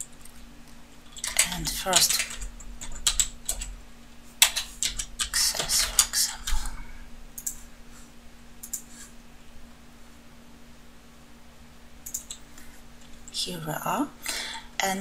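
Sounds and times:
keyboard typing: 1.0s - 3.8s, 4.4s - 6.7s, 7.4s - 7.6s, 8.6s - 9.1s, 12.0s - 12.4s.

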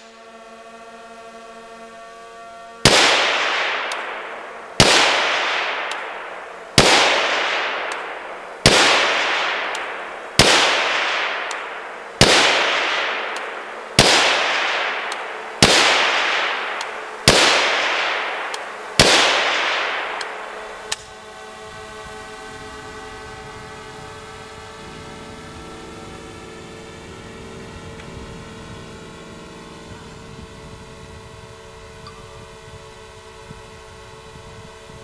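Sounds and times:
suppressed gunshots: 2.8s - 21.3s.

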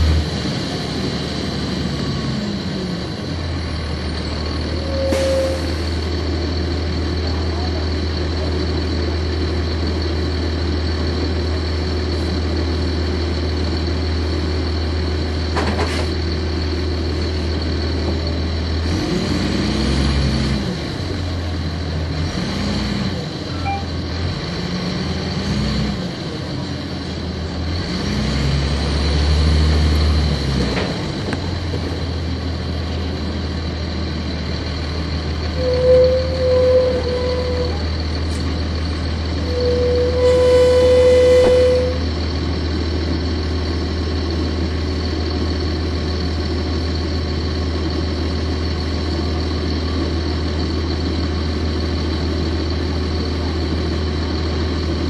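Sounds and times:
diesel bus engine: 0.0s - 55.0s
short beeping tone: 23.5s - 24.0s.

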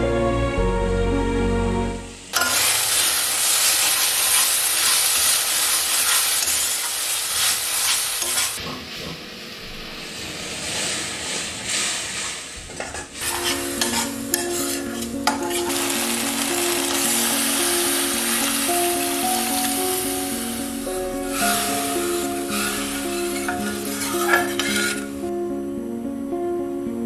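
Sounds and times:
paste sizzling in pan: 2.2s - 25.3s
soft background music: 13.2s - 27.0s.

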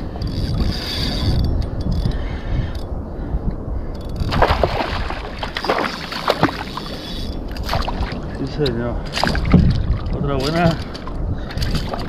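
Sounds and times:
fishing reel whirring and clicking: 0.0s - 2.9s, 6.6s - 7.8s
wind and water rumble: 0.0s - 12.0s.

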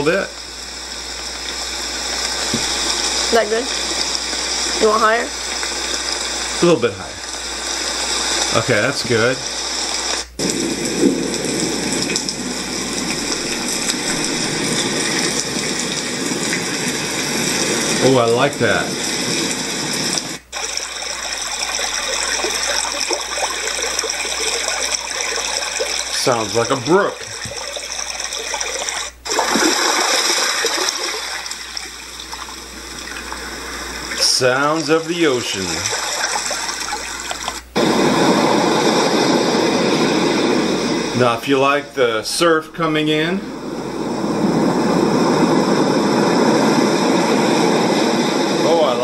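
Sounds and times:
recorded rain hiss from speaker: 0.0s - 49.0s.

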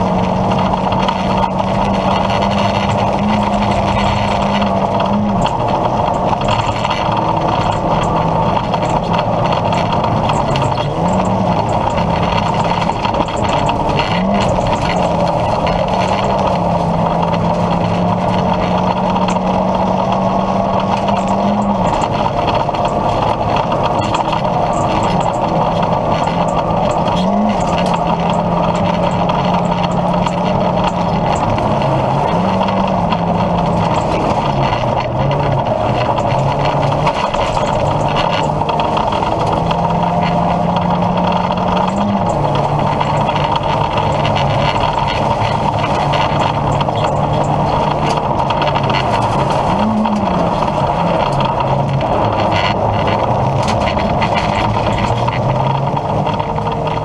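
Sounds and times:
car engine at high revs: 0.0s - 57.0s
road and tyre noise: 0.0s - 57.0s.

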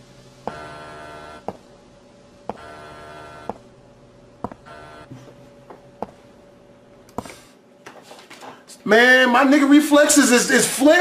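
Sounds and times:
electronic buzzing tone: 0.4s - 1.6s, 2.5s - 3.8s, 4.4s - 5.3s.

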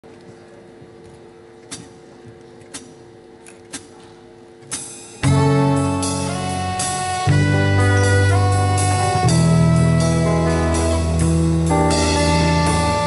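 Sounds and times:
amplifier hum: 0.0s - 13.0s
band chord on guitars and horns: 5.2s - 13.0s.

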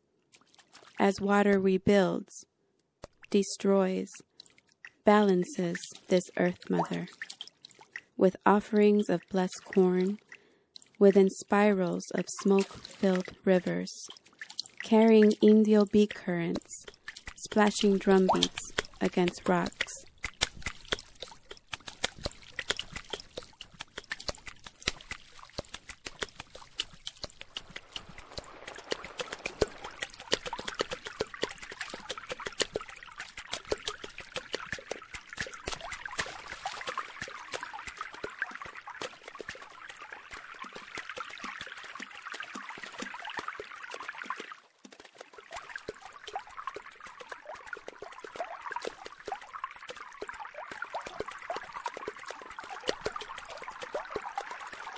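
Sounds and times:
water trickling and splashing: 0.0s - 2.4s, 3.0s - 54.9s.

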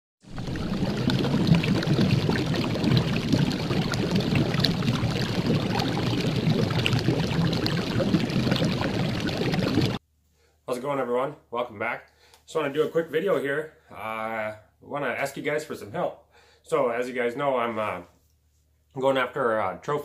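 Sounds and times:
small splashes: 0.2s - 10.0s
water rushing and splashing: 0.2s - 10.0s
boat wake churning: 0.3s - 10.0s.

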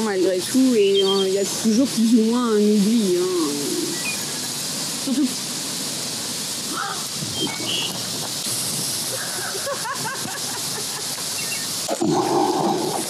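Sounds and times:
hissing outdoor noise: 0.0s - 13.0s.

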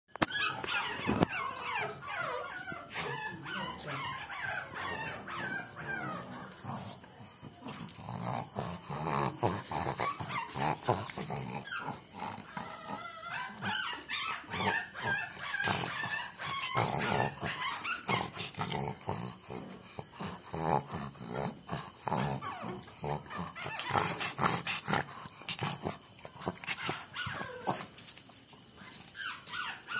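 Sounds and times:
puppies yapping: 0.2s - 6.5s, 12.5s - 18.3s, 26.7s - 28.1s, 28.8s - 29.9s
puppies whining: 0.2s - 6.8s, 11.6s - 18.3s, 26.7s - 28.2s, 28.8s - 29.9s.

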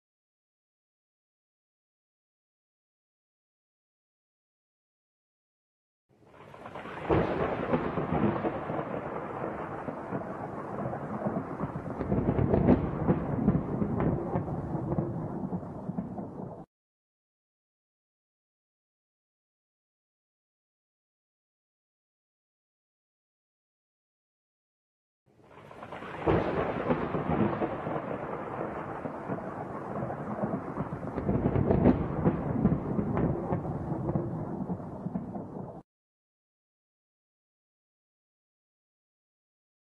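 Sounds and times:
thunder crack and rumble: 6.5s - 16.7s, 25.6s - 35.8s.

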